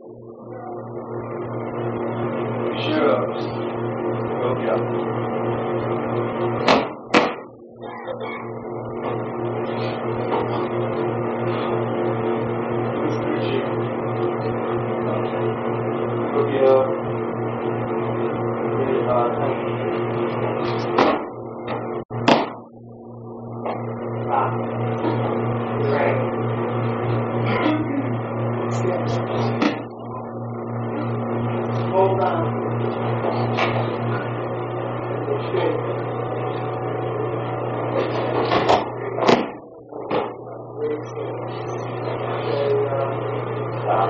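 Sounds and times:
low hum: 0:00.0 - 0:44.0
loud thuds: 0:06.6 - 0:07.6, 0:20.7 - 0:22.7.

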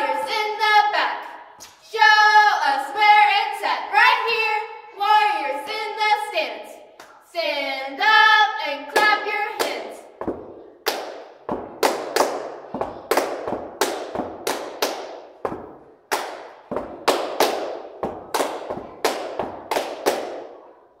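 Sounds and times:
hand claps echoing: 0:08.9 - 0:20.8.

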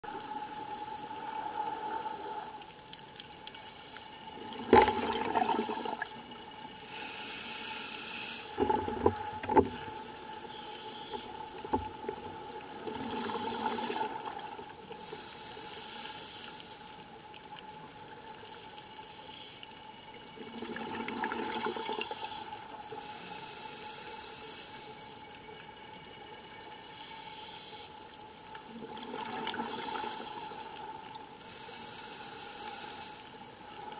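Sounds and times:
faint steady tone: 0:00.0 - 0:33.9
diver breathing bubbles: 0:04.5 - 0:06.2, 0:12.8 - 0:16.9, 0:28.7 - 0:30.8.

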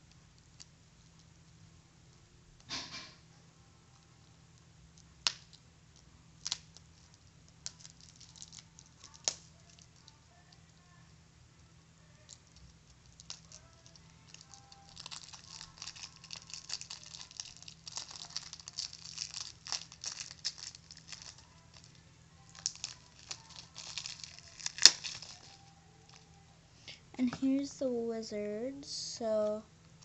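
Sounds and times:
plastic wrapper crinkling: 0:04.9 - 0:10.6, 0:12.2 - 0:26.4.

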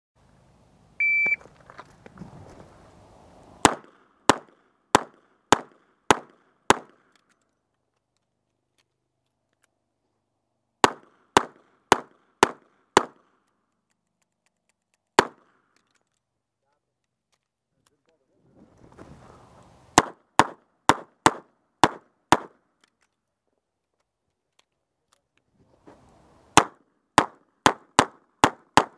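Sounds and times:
shot timer beep: 0:01.0 - 0:01.4.

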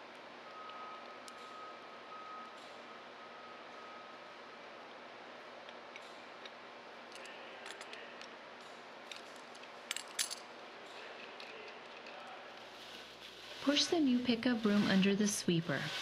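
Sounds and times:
metallic clinks of wrench and studs: 0:09.1 - 0:10.5.

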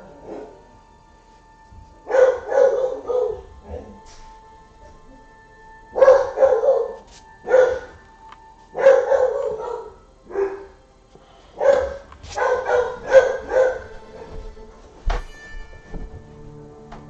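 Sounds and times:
dog barking: 0:00.0 - 0:00.7, 0:02.0 - 0:04.0, 0:05.9 - 0:08.0, 0:08.7 - 0:10.8, 0:11.6 - 0:14.3.

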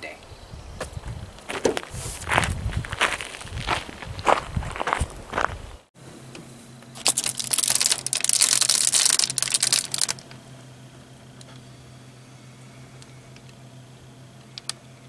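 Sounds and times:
low steady hum: 0:00.0 - 0:15.0
footsteps on gravel: 0:00.8 - 0:05.9, 0:07.0 - 0:10.2
bubble foil crinkling: 0:07.0 - 0:10.3.

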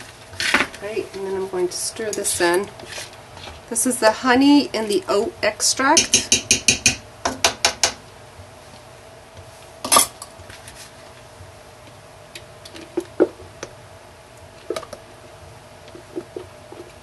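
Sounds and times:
utensil taps and clinks on pot: 0:06.0 - 0:08.0.

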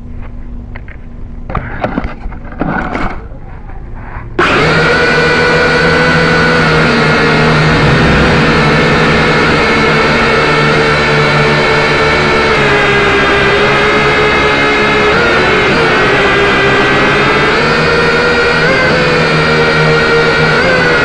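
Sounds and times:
drone propellers whining: 0:04.2 - 0:21.0.

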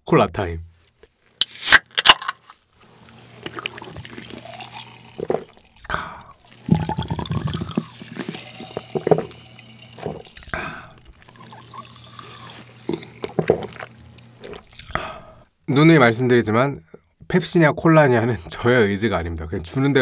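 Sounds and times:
liquid sloshing in a can: 0:02.8 - 0:05.8, 0:06.4 - 0:11.9
person gulping a drink: 0:02.9 - 0:15.4.

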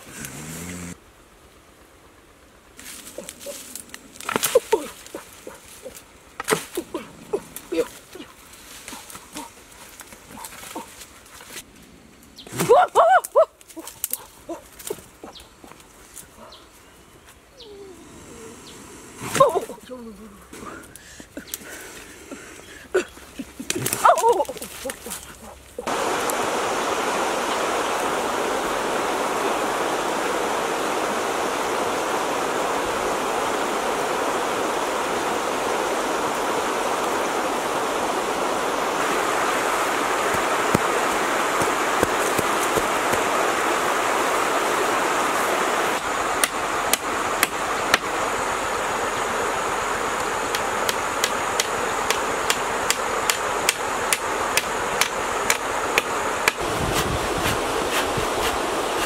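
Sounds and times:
rushing water noise: 0:00.0 - 0:11.7, 0:20.5 - 0:59.0.

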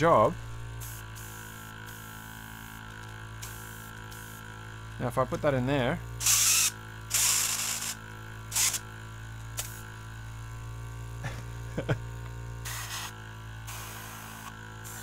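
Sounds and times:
air compressor humming: 0:00.0 - 0:15.0
airbrush hissing bursts: 0:12.6 - 0:15.0.

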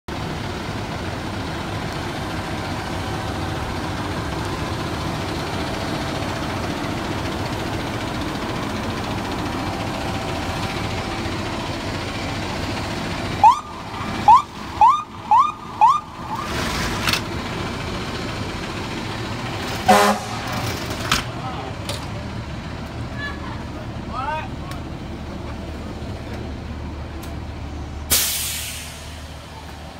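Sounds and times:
diesel engine idling: 0:00.1 - 0:29.9
siren chirps: 0:13.4 - 0:16.6.

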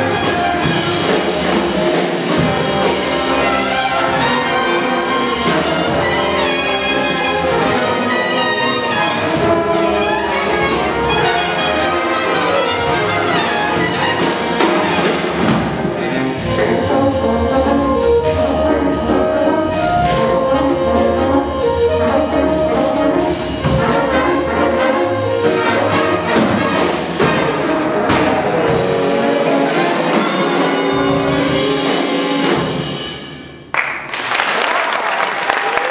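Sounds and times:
jazz big band playing: 0:00.0 - 0:33.7
audience applause: 0:33.7 - 0:35.9.

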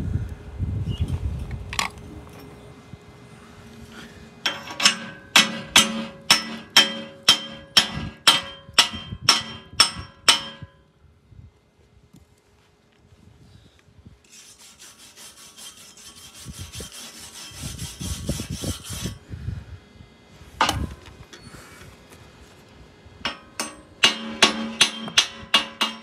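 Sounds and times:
chipping hammer striking steel: 0:04.5 - 0:10.8, 0:23.3 - 0:26.0.

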